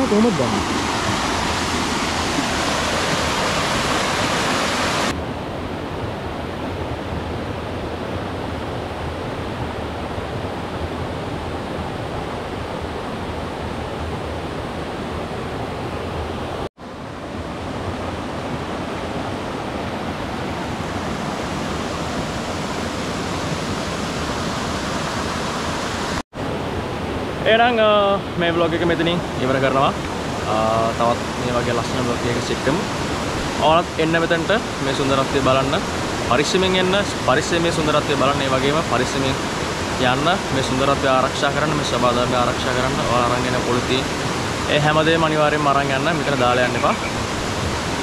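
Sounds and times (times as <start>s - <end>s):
waterfall rushing: 0.0s - 5.2s, 15.8s - 48.0s.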